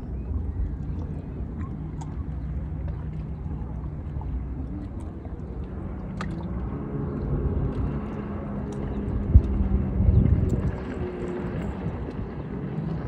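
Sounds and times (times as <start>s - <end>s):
motorboat engine droning: 0.0s - 13.0s
wind rumbling on microphone: 0.0s - 13.0s.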